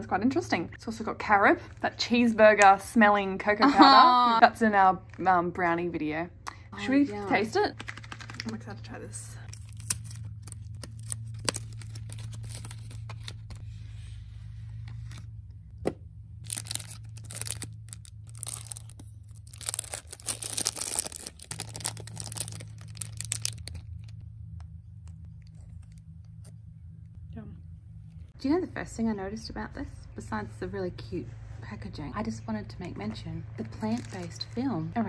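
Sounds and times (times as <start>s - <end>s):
plastic wrapper tearing and crinkling: 7.2s - 8.6s, 9.4s - 13.6s, 16.4s - 24.2s, 33.6s - 34.6s.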